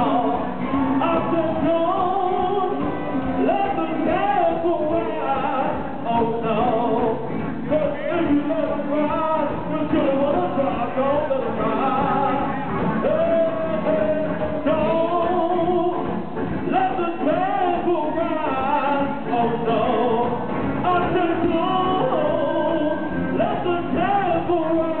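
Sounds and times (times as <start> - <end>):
live band playing: 0.0 - 25.0
man singing: 0.0 - 25.0.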